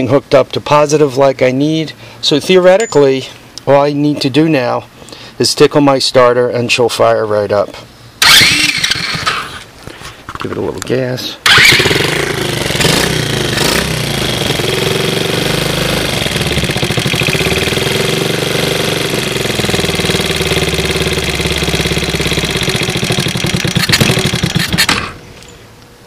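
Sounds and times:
small engine running: 8.2s - 9.6s, 11.5s - 25.2s.

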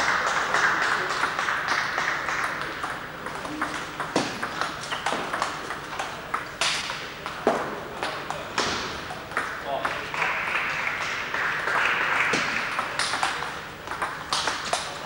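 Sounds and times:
table tennis ball clicks: 2.4s - 7.4s.

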